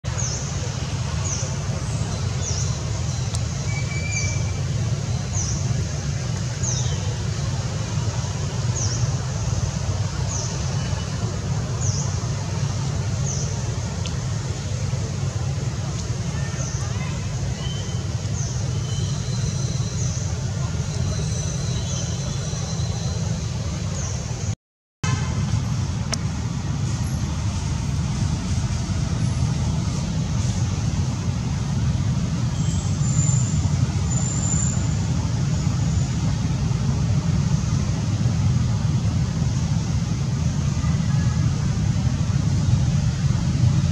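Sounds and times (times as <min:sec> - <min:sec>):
low rumbling noise: 0:00.0 - 0:43.9
hiss: 0:26.7 - 0:43.8.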